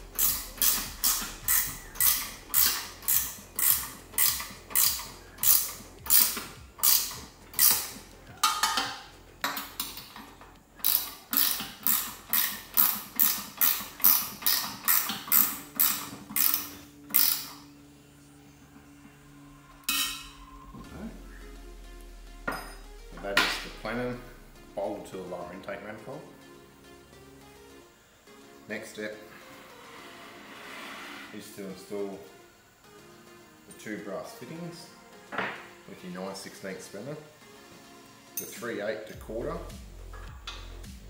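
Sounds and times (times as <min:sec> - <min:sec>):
socket ratchet clicking: 0:00.1 - 0:10.2, 0:10.8 - 0:17.6.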